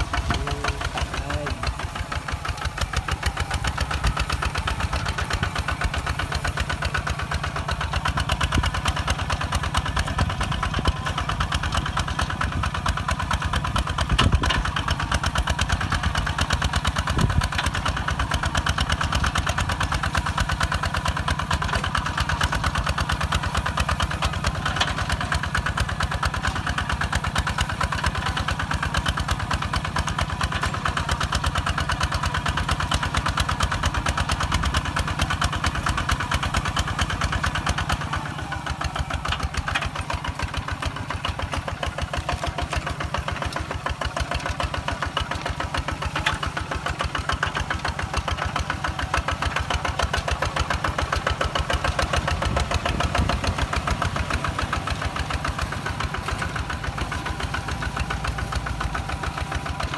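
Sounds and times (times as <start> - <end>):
diesel tractor engine chugging: 0.0 - 59.9.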